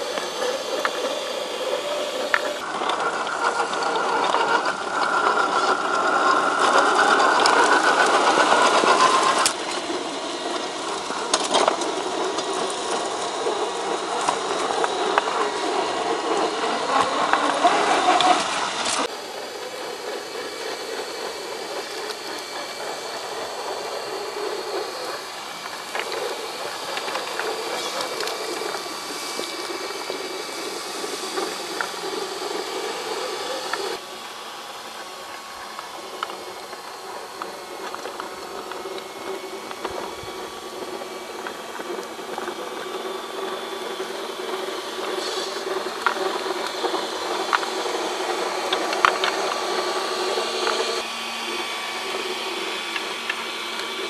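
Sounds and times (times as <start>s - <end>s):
electric motor whining: 0.0s - 54.0s.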